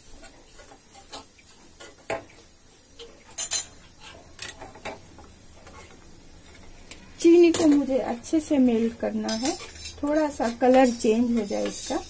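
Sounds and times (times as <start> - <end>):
metal spoon scraping pan: 9.1 - 12.0.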